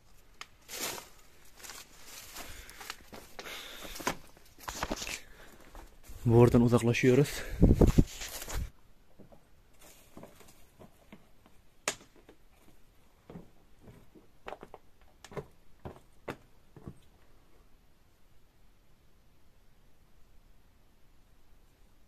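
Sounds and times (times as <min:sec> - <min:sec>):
footsteps on rough ground: 0:00.0 - 0:17.0.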